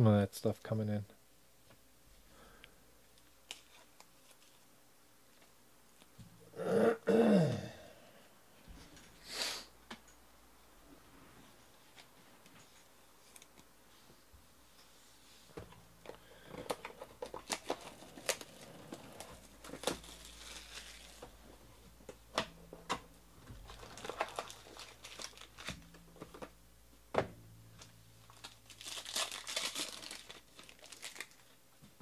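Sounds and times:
wrapper crinkling and tearing: 16.8 - 21.4, 23.6 - 26.4, 28.2 - 31.6.

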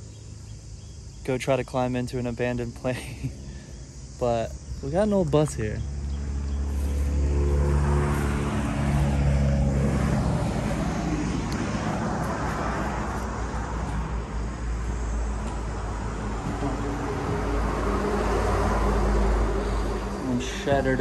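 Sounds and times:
motor engine humming: 2.2 - 21.0.

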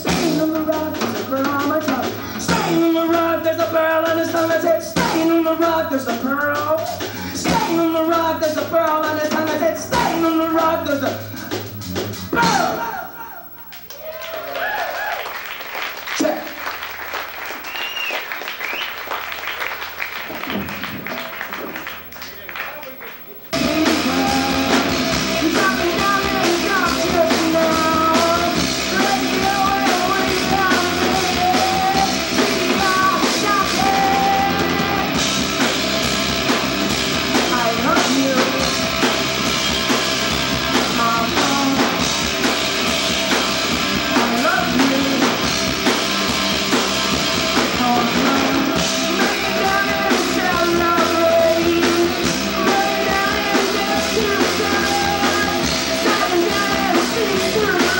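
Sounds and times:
person singing into microphone: 0.0 - 11.5, 23.6 - 35.3, 37.3 - 39.1, 40.7 - 42.2, 44.0 - 45.5, 47.6 - 57.9
bass guitar: 0.0 - 13.1, 23.5 - 57.9
drum kit: 0.0 - 13.6, 17.2 - 22.4, 23.4 - 57.9
electric guitar: 23.6 - 57.9.

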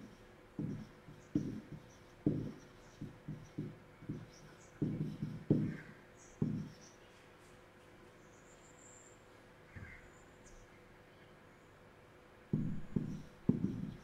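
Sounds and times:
stylus tapping on tablet: 0.0 - 6.8, 12.6 - 14.0.

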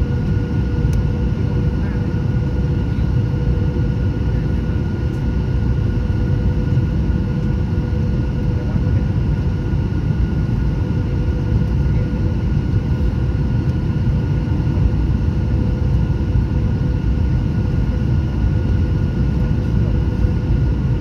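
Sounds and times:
airplane cabin rumble: 0.0 - 21.0.

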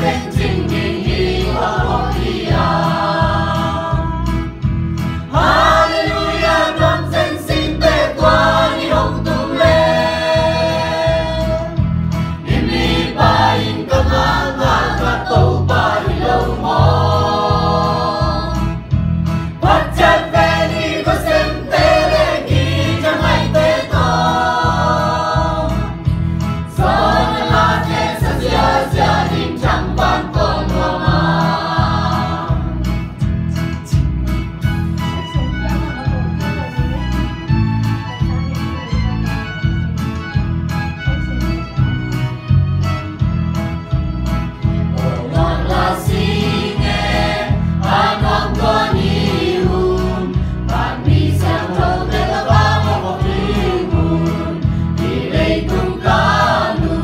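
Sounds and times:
choir singing a hymn: 0.0 - 33.8, 44.6 - 57.0.

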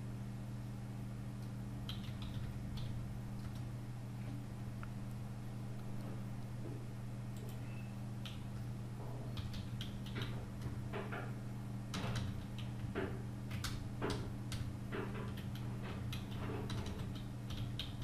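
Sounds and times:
steady low hum: 0.0 - 18.0
keyboard typing: 1.8 - 3.7, 7.4 - 8.7, 9.3 - 11.3, 11.9 - 18.0.

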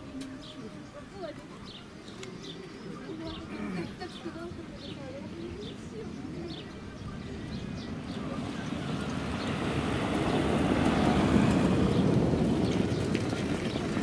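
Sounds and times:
wheels rumbling: 2.9 - 14.0
car pulling away: 7.8 - 14.0
hoofbeats on dirt track: 9.1 - 14.0.

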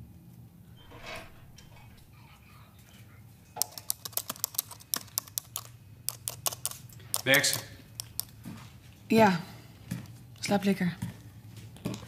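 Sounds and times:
laptop keyboard typing: 3.6 - 8.4.

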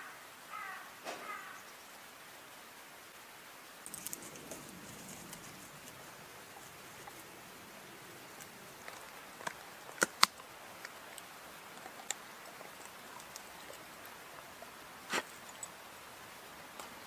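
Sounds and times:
dog chewing wooden stick: 3.8 - 15.8.

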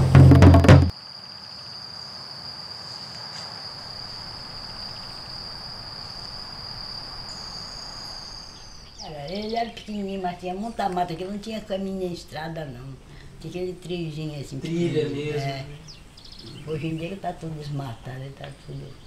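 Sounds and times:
drum-led music: 0.0 - 0.9
faint forest ambience: 0.0 - 19.0
higher insect tone: 0.0 - 19.0
insect trilling: 0.9 - 14.6, 15.4 - 19.0.

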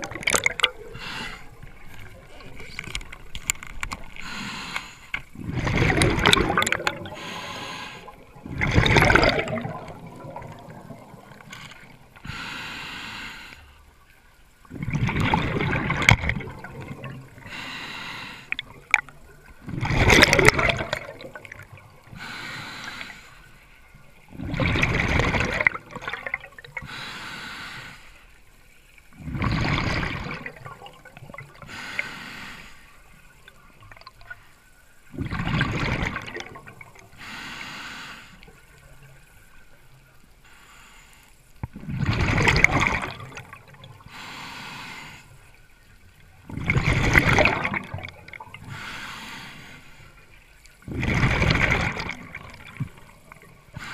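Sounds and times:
exhaled bubbles rushing: 0.0 - 4.3, 5.3 - 12.2, 14.6 - 17.5, 18.5 - 22.0, 24.3 - 26.8, 29.1 - 31.6, 35.1 - 37.1, 41.7 - 44.0, 46.4 - 48.7, 50.8 - 53.8
regulator breath hiss: 4.2 - 5.2, 7.2 - 8.2, 11.6 - 13.8, 17.4 - 18.6, 22.2 - 23.6, 26.9 - 28.4, 31.7 - 33.0, 37.2 - 38.5, 44.1 - 45.6, 48.7 - 50.2.

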